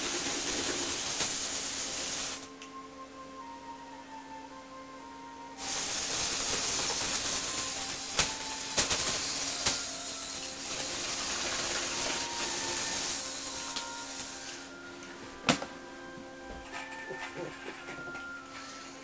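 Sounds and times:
toy motors whirring: 0:00.0 - 0:02.5, 0:05.6 - 0:14.8, 0:16.6 - 0:19.0.

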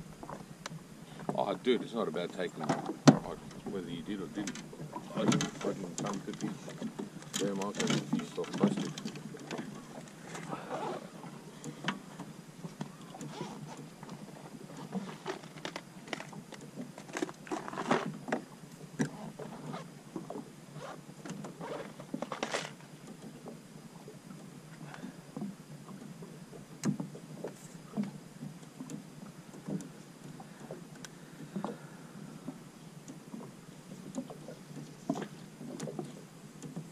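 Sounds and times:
steady hiss: 0:00.0 - 0:09.1
waves slapping against metal hull: 0:00.0 - 0:36.9.

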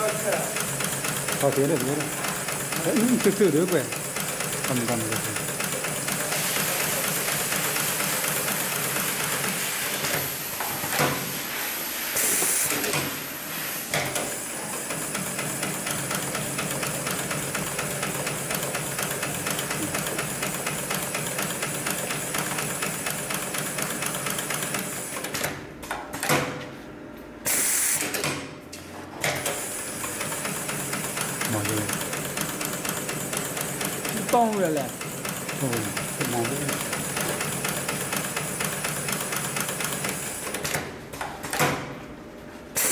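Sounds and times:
sewing machine stitching fast: 0:00.0 - 0:10.4, 0:14.7 - 0:25.4, 0:29.4 - 0:40.8.

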